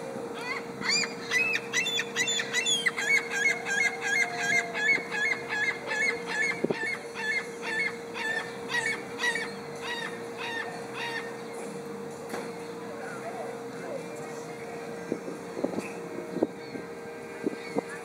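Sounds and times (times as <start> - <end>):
gull calling: 0.4 - 11.4.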